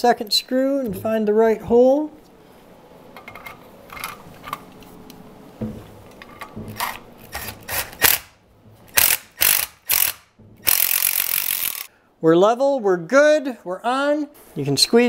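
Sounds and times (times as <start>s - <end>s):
cordless driver driving screw: 8.9s - 11.9s.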